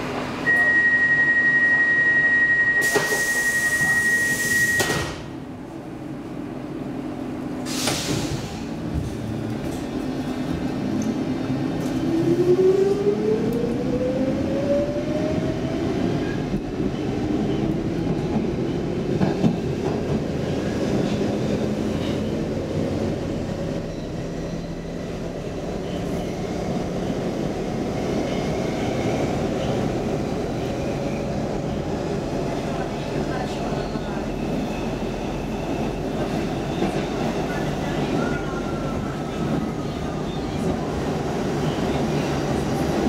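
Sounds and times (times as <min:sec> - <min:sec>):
train rumble and wheel noise: 0:00.0 - 0:43.0.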